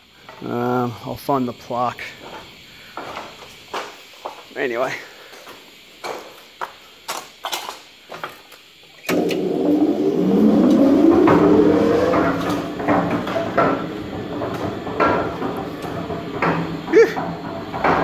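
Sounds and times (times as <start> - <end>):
machine motor humming: 9.1 - 18.0
machine rattling: 9.1 - 18.0.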